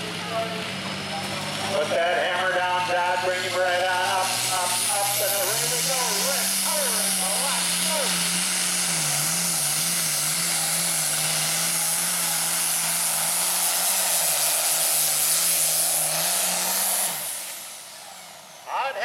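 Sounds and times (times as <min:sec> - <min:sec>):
tractor engine at full throttle: 0:00.0 - 0:19.0
loud hiss: 0:03.4 - 0:18.6.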